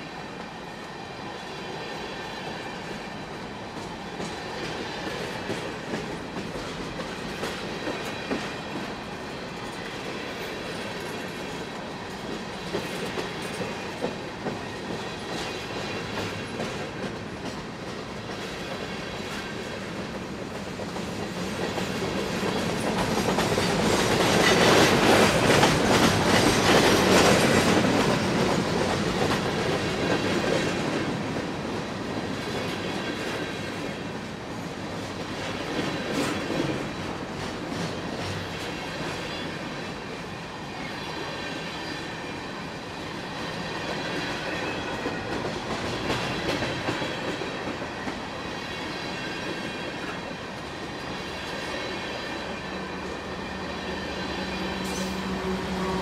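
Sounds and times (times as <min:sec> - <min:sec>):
train rumble: 0:00.0 - 0:56.0
train wheels clicking over rail joints: 0:03.7 - 0:39.8, 0:43.3 - 0:52.1.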